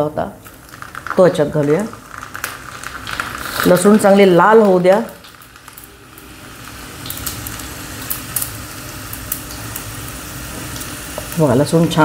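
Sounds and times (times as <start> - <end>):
garlic sizzling in hot oil: 0.0 - 12.0
pops and crackles: 0.4 - 5.9.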